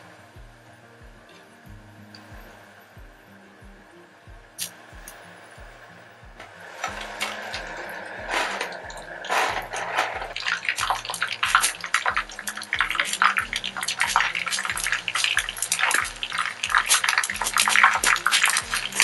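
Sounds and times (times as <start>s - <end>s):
oil sizzling and crackling: 4.6s - 19.0s.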